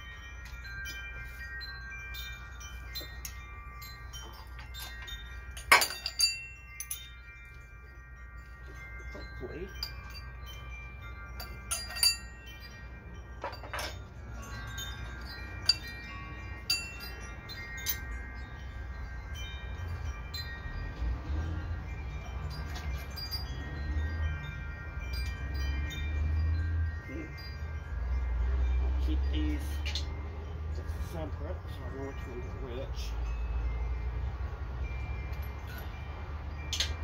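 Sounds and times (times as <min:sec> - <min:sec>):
sharp metal clinks: 0:00.0 - 0:37.0
wind chimes ringing: 0:00.0 - 0:37.0.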